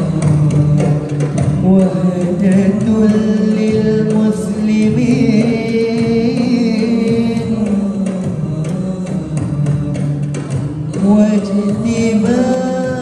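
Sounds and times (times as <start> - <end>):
solo voice chanting recitation: 1.8 - 10.2.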